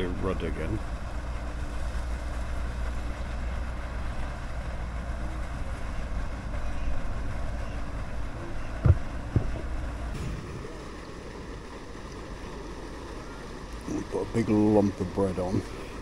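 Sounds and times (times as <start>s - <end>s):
wind rumble on microphone: 8.3s - 10.8s
dull knocks: 8.8s - 9.8s.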